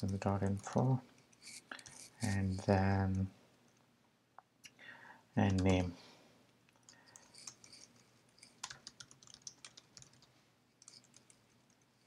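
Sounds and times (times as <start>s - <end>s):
typing on a keyboard: 5.4s - 5.8s, 6.8s - 11.8s.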